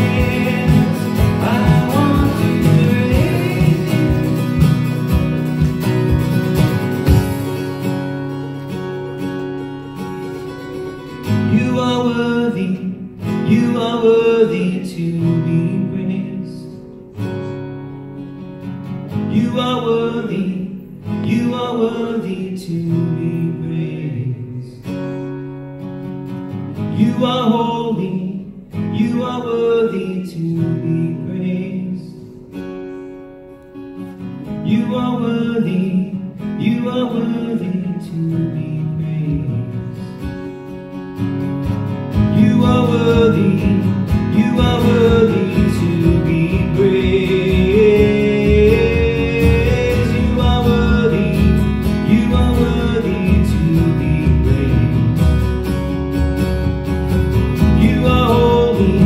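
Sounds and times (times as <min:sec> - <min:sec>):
man singing into a microphone: 0:00.0 - 0:04.8, 0:11.4 - 0:16.9, 0:19.2 - 0:25.2, 0:26.9 - 0:32.4, 0:34.6 - 0:40.2, 0:42.2 - 0:55.4, 0:57.6 - 0:59.0
acoustic guitar strumming: 0:00.0 - 0:59.0.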